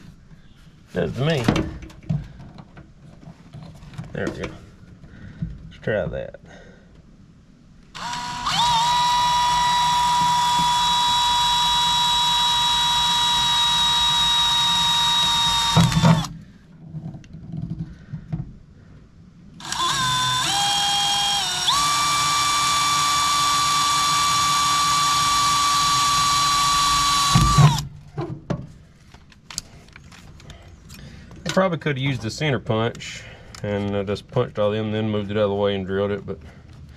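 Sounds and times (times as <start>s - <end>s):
cordless drill boring into sheet metal: 8.0s - 16.3s, 19.6s - 27.9s.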